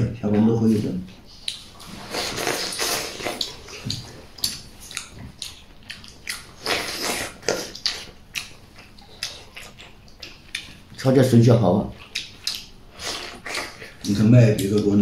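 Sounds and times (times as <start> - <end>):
chewing: 1.3 - 11.1, 11.9 - 15.0
person slurping broth: 2.0 - 3.6
wet mouth clicks: 2.2 - 10.8, 12.1 - 14.8.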